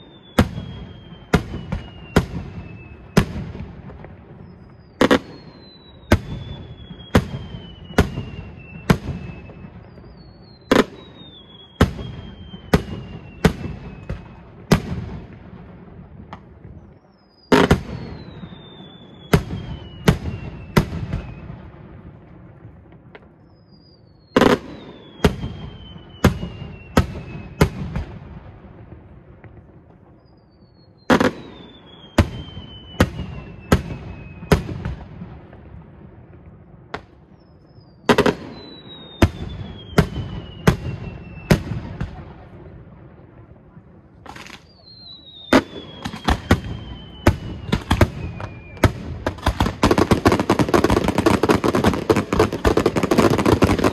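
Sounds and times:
falling firework whistle: 0.0s - 15.4s, 16.7s - 22.2s, 23.1s - 28.2s, 29.5s - 35.2s, 36.9s - 42.5s, 44.2s - 53.9s
fireworks bangs: 0.0s - 53.9s.

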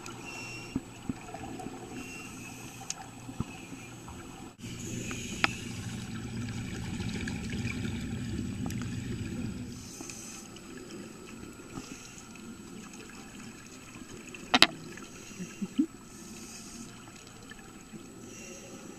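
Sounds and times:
underwater regulator bubbling: 4.6s - 9.8s.

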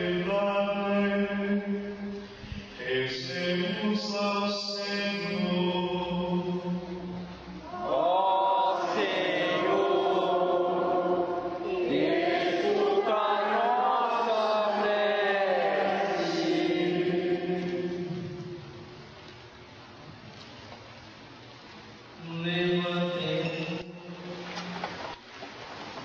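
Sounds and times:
voices singing a slow chant: 2.8s - 18.9s.

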